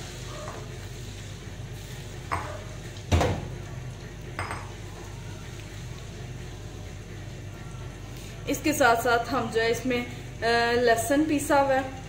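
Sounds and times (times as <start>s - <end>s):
vegetables frying in oil: 0.0s - 7.2s.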